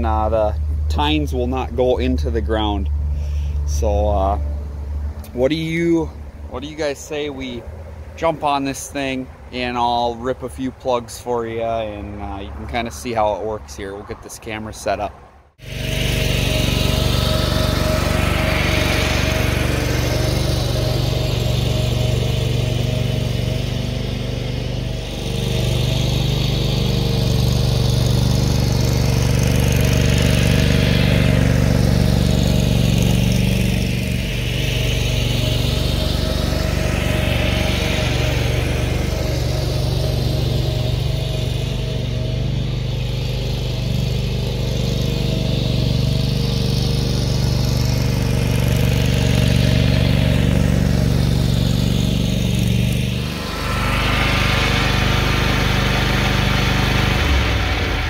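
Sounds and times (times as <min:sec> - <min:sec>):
lawn machine engine running: 0:15.6 - 0:58.0.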